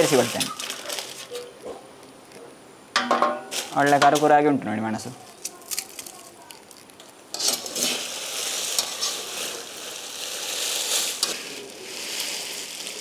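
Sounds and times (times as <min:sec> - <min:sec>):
chillies stirred in metal pan: 0:05.3 - 0:13.0.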